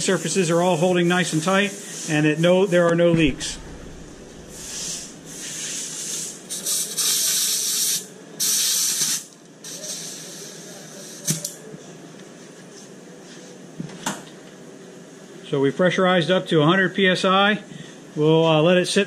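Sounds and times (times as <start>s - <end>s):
compressed air hissing in spurts: 4.5s - 10.6s.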